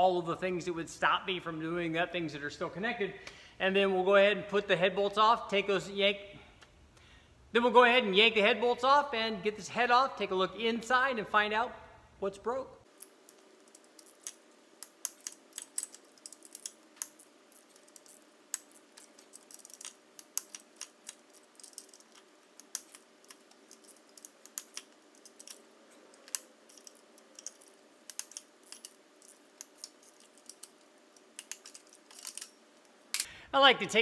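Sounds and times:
metallic clicks of hand tools: 13.0s - 32.6s.

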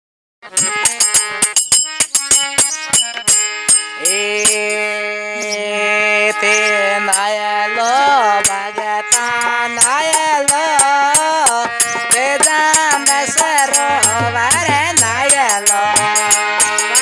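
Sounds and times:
rapid percussion strokes: 0.5s - 4.8s, 9.2s - 17.0s.

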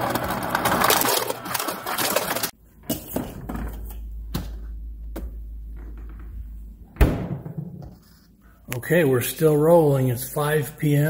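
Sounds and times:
ice clattering into plastic cup: 0.0s - 2.5s
low steady hum: 2.5s - 11.0s.

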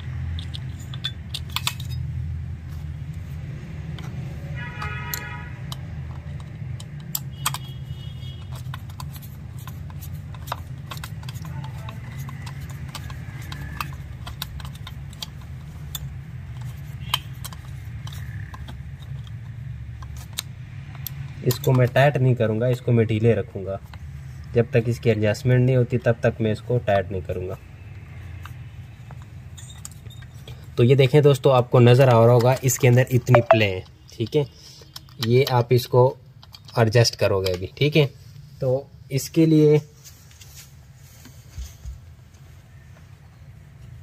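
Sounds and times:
screwdriver and screws clicking: 0.0s - 2.4s, 4.8s - 22.9s, 31.9s - 37.7s
brief high tones: 33.3s - 33.7s.

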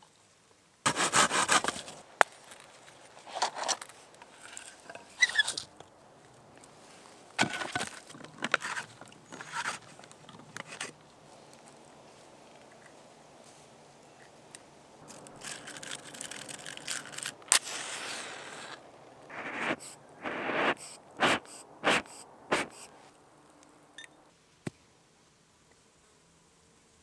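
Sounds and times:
match striking and flaring: 15.0s - 23.0s
whooshing bursts: 19.3s - 23.1s.

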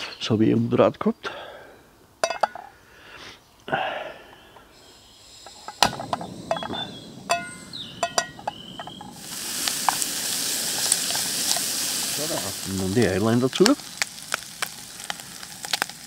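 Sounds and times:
food sizzling in oil: 4.8s - 16.0s
pan and utensils clinking: 5.6s - 9.1s.

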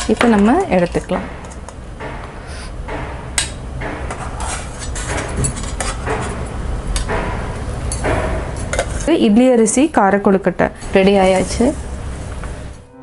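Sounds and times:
sharp metal taps: 1.3s - 8.9s.

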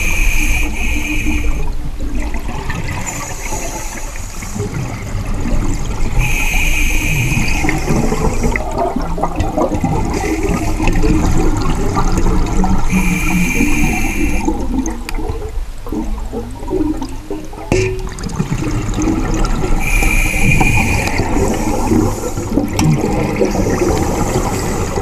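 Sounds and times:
hissing inhalation through regulator: 0.0s - 1.7s, 3.1s - 4.6s, 6.2s - 8.6s, 12.8s - 14.6s, 19.7s - 22.6s
exhaled air bubbling underwater: 0.0s - 25.0s.

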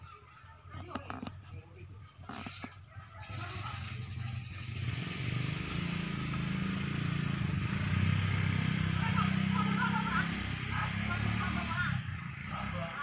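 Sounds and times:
motor engine humming: 0.0s - 13.0s.

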